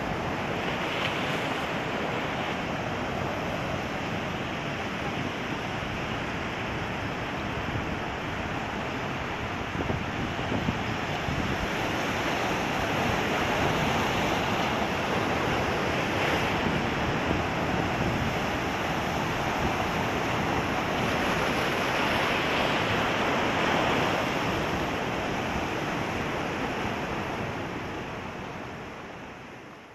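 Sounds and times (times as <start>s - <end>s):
surf breaking on rocky shore: 0.0s - 28.9s
wind on microphone: 6.9s - 28.8s.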